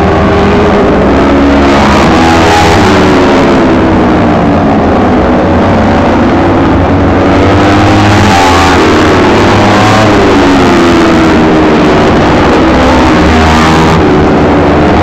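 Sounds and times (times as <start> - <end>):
racing motorcycles revving: 0.0 - 15.0.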